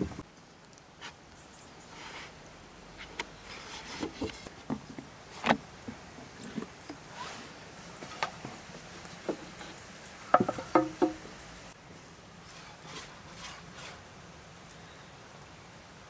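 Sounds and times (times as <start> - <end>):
rolling pin knocking on wooden board: 10.3 - 11.2.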